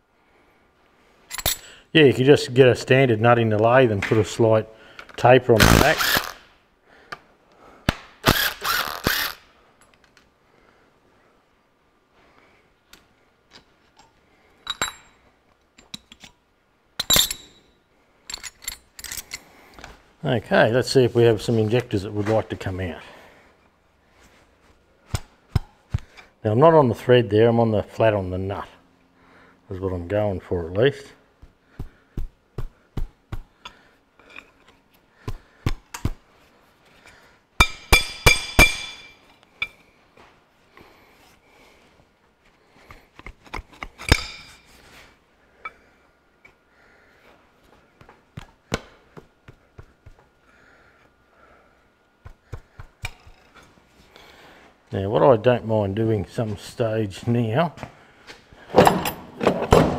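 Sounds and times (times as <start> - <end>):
steel parts clinking and clanking: 1.3 - 1.7, 13.5 - 16.4, 17.0 - 19.5, 34.2 - 34.8, 37.6 - 39.8, 43.2 - 44.7, 58.7 - 59.9.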